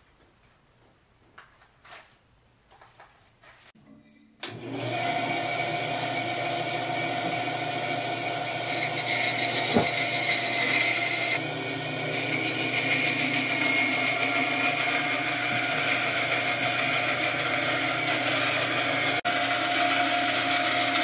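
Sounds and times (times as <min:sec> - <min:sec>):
band saw cutting wood: 0:04.4 - 0:21.0.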